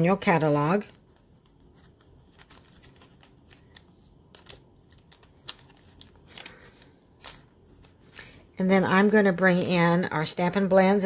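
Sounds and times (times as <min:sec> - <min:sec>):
packaging crinkling and clicking: 0:01.0 - 0:08.0.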